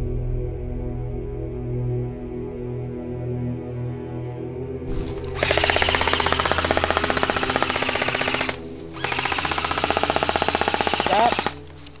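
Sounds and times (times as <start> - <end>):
airsoft rifle firing bursts: 4.9 - 11.6.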